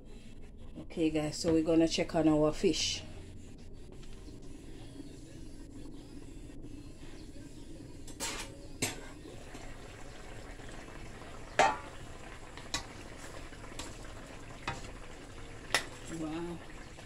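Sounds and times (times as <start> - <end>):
stew simmering: 8.8 - 17.0
metal pan lid clinking: 11.6 - 11.9.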